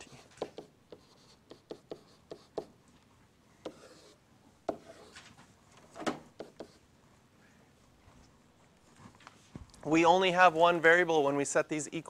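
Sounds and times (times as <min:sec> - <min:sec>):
stylus tapping and scratching: 0:03.7 - 0:05.3.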